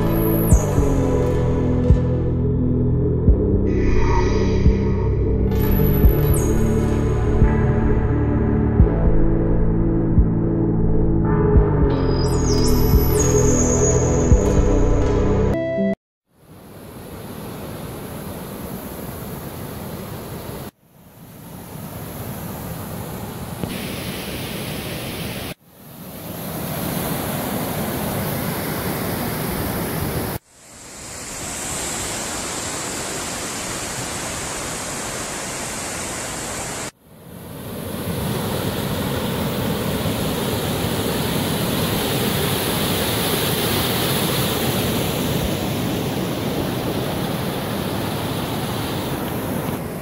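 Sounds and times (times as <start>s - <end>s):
waterfall rushing over rock: 31.1s - 37.0s, 40.0s - 49.9s.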